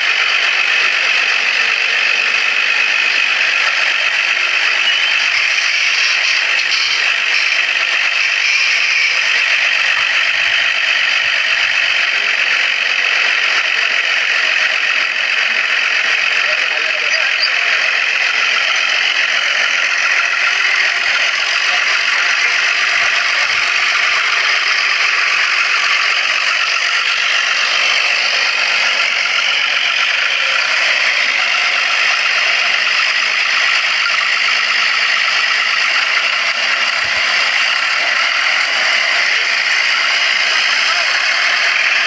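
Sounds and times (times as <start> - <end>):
tractor diesel engine rattling: 0.0 - 42.0.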